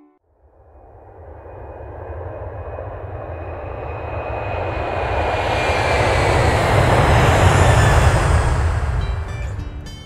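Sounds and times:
faint high whine: 0.0s - 9.6s
airplane engine rumble: 0.3s - 10.0s.

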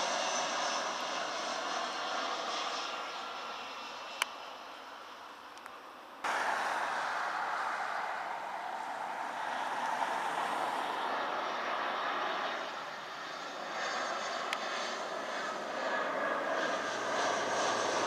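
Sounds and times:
jet engines droning: 0.0s - 18.0s.

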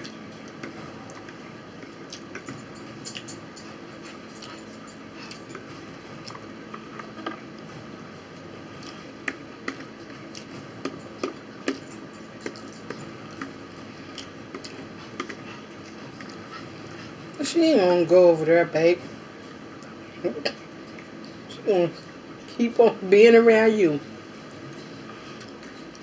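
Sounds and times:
chewing and mouth sounds: 0.0s - 17.3s, 24.6s - 26.0s
forks clicking and scraping on plate: 2.1s - 5.8s, 9.7s - 13.6s.

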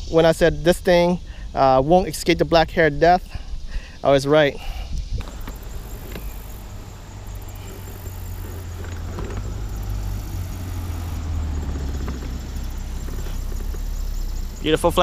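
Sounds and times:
wind buffeting microphone: 4.9s - 15.0s.

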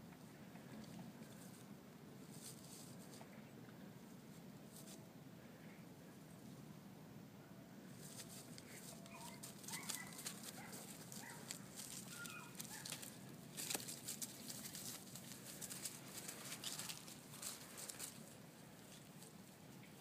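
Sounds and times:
puppies rustling through dry leaves: 8.0s - 20.0s.

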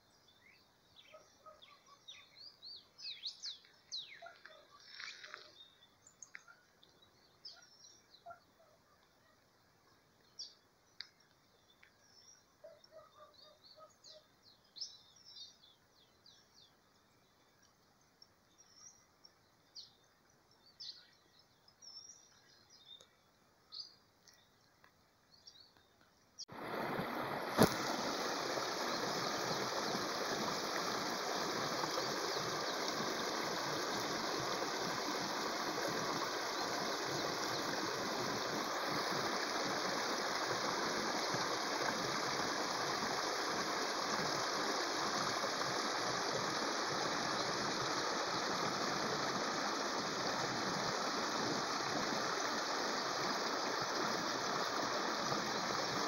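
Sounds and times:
faint bird chirps: 0.0s - 26.5s
small waterfall rushing: 26.5s - 56.0s.

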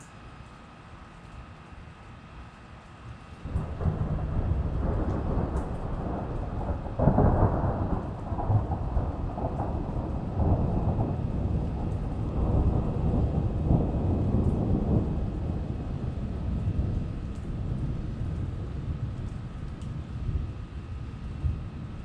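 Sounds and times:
rain falling: 2.4s - 22.0s
thunder rumbling: 3.4s - 22.0s.

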